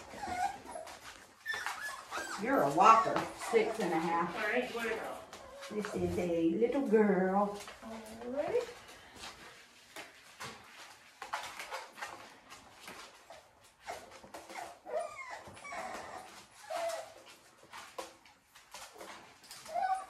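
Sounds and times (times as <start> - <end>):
puppies whimpering: 0.0 - 5.8, 13.2 - 17.4, 19.4 - 20.0
small clicks and rustles: 0.0 - 20.0.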